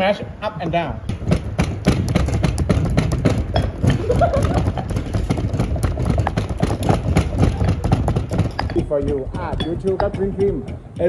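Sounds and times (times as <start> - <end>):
knives chopping on boards: 1.1 - 11.0.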